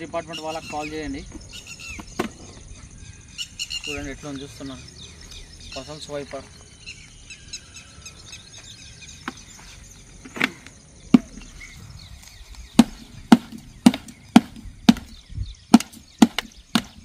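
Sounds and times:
faint high chirping: 0.0 - 17.0
sharp wooden knocks: 11.1 - 11.6, 12.8 - 17.0.

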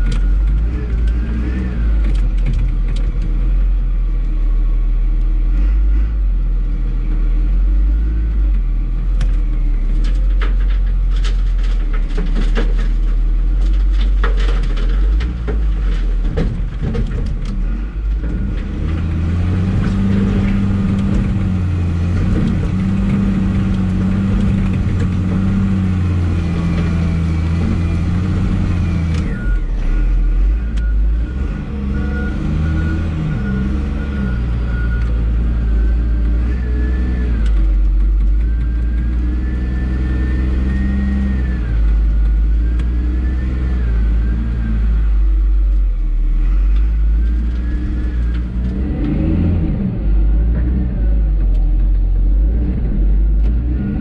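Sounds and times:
knocks and clatter: 0.0 - 3.8, 9.2 - 29.8
diesel engine running: 0.0 - 54.0.

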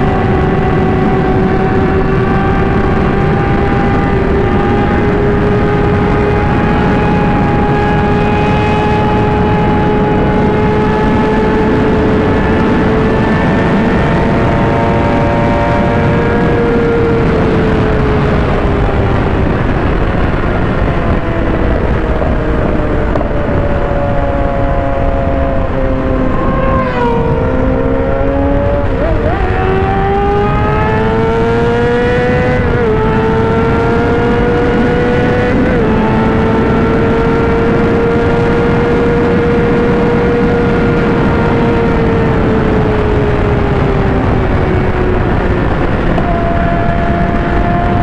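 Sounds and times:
motorcycle engine at speed: 0.0 - 48.0
wind noise: 0.0 - 48.0
motorcycle passing by: 22.6 - 48.0.

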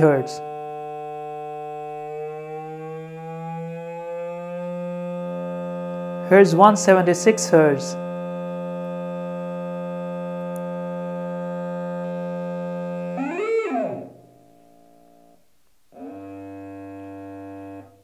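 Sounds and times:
steady test tone from loudspeaker: 0.0 - 18.0
wavering tone glide: 12.4 - 15.4.

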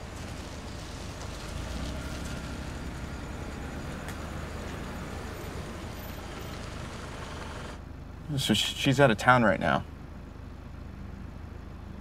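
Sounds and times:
car engine rumbling: 0.0 - 8.7.

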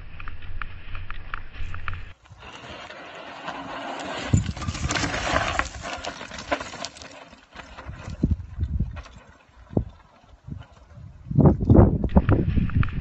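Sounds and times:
bike tyres rumbling on dirt trail: 0.0 - 13.0
bike chain and frame rattling: 2.4 - 12.0
tyres clattering on loose stones: 3.2 - 10.4.

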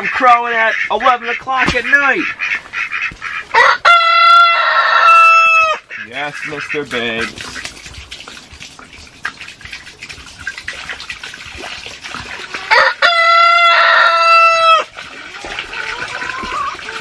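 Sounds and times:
hens clucking: 0.0 - 7.7, 12.4 - 17.0
rooster crowing: 3.5 - 5.8, 12.7 - 14.8
water pouring into rubber pan: 6.0 - 17.0.

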